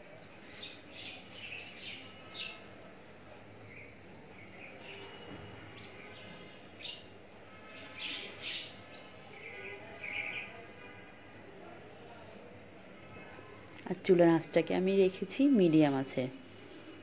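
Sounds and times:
small birds chirping: 0.1s - 2.8s, 3.5s - 11.3s.

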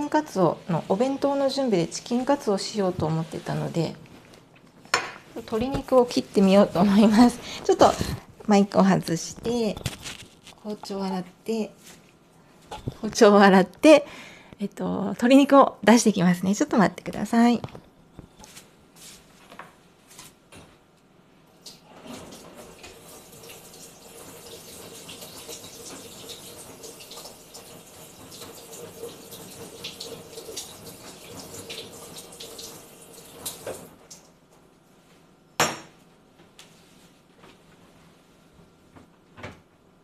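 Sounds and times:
tap running: 22.0s - 34.0s.

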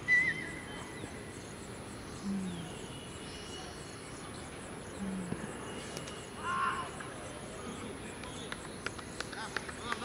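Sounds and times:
faint high chirping: 0.0s - 9.3s
background hiss: 0.0s - 10.0s
short low calls: 2.2s - 3.1s, 4.9s - 5.6s.

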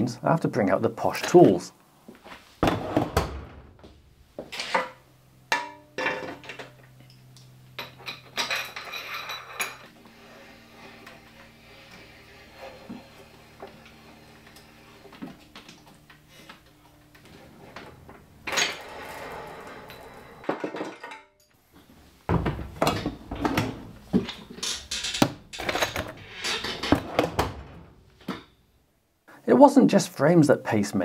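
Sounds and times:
metal scrape: 8.0s - 15.1s, 17.3s - 20.7s, 24.3s - 27.3s
metallic clattering and rattling: 17.3s - 21.4s, 22.3s - 28.6s.

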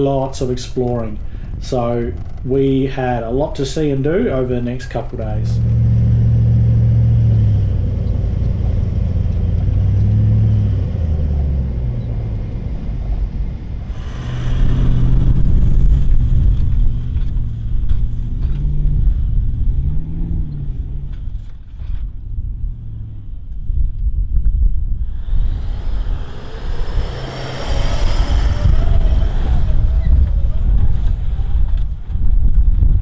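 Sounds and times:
vehicle engine driving: 0.0s - 33.0s
rush of noise: 13.3s - 18.6s, 24.9s - 32.3s.

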